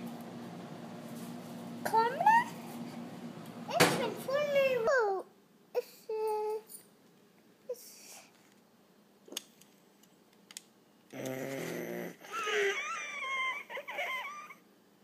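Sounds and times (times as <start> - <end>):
low hum-like voice: 11.1 - 13.4
child vocalising: 11.2 - 14.6.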